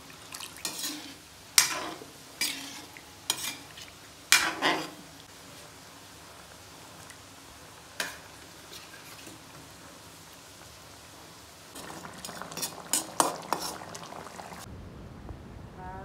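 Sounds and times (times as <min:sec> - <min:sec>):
curry sizzling in pan: 0:00.0 - 0:14.7
utensil stirring and scraping pan: 0:00.6 - 0:05.1, 0:08.0 - 0:09.5, 0:11.8 - 0:14.6.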